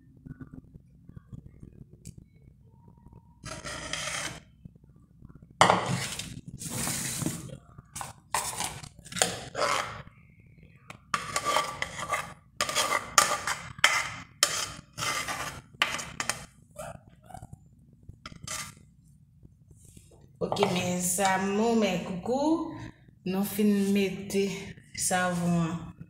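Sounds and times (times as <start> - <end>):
metal utensil scraping a pot: 3.4 - 4.5, 5.6 - 10.1, 11.1 - 16.5, 18.3 - 18.8.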